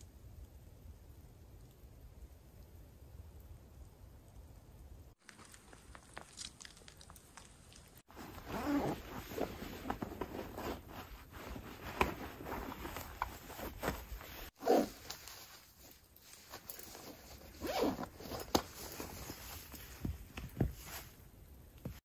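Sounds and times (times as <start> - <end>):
fabric rustling: 8.0 - 22.0.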